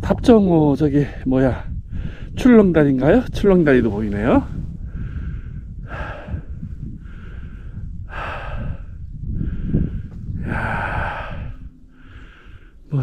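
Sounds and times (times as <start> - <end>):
person breathing hard: 1.9 - 2.4, 4.8 - 12.9.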